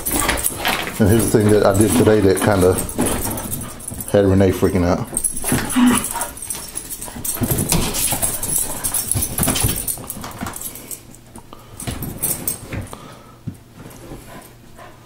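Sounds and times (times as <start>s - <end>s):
dog paws scratching couch: 0.0s - 10.9s.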